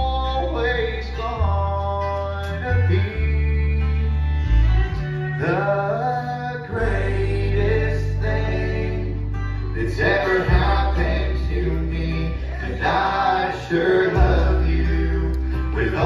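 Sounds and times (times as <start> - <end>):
fiddle: 0.0 - 16.0
strummed acoustic guitars: 0.0 - 16.0
upright bass notes: 0.0 - 16.0.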